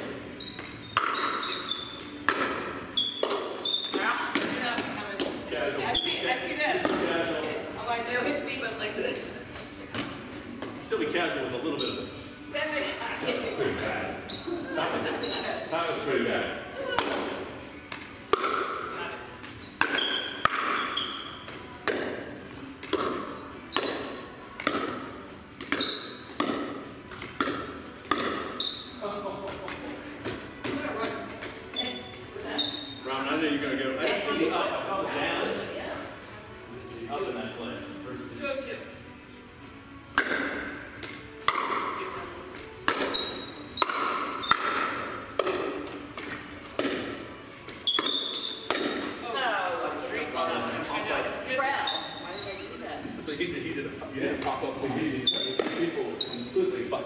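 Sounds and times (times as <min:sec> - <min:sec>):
paddles hitting plastic ball: 0:00.5 - 0:01.4, 0:02.0 - 0:05.4, 0:17.0 - 0:18.8, 0:19.4 - 0:28.6, 0:40.1 - 0:50.4, 0:55.3 - 0:56.0.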